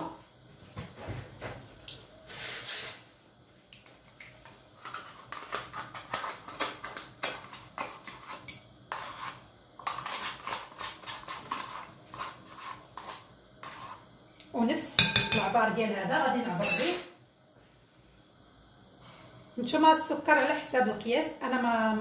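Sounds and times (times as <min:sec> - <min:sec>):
utensil tapping and scraping a pot: 0:04.4 - 0:14.0, 0:15.0 - 0:15.6.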